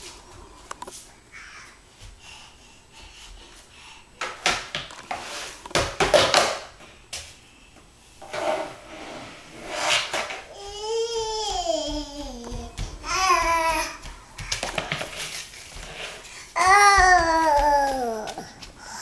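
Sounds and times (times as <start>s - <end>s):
broom and dustpan scraping floor: 3.3s - 6.6s, 7.2s - 19.0s.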